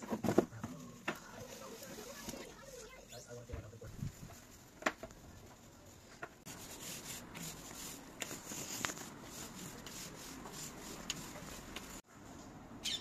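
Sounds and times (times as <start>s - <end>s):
paint roller rubbing on paving: 6.5s - 12.0s.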